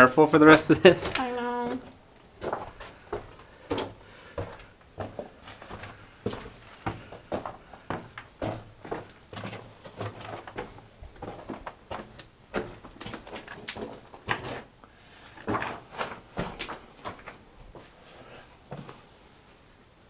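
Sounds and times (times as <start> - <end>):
footsteps crunching on rock: 0.7 - 14.7.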